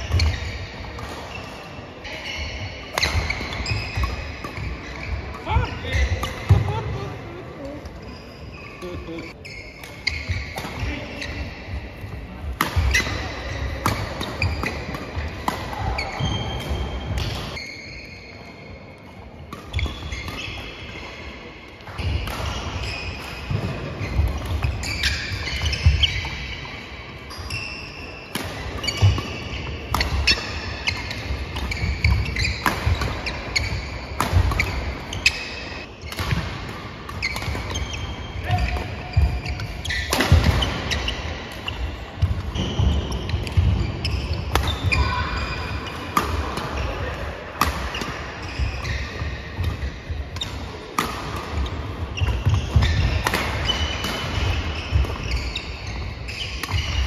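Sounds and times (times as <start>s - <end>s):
shoes squeaking on court: 0.0s - 11.8s, 12.8s - 18.9s, 19.6s - 21.3s, 21.9s - 57.0s
rackets striking shuttlecock: 28.3s - 57.0s.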